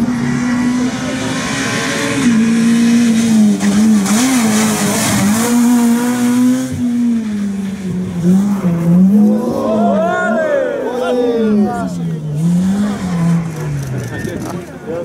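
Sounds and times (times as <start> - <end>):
rally car engine revving: 0.0 - 15.0.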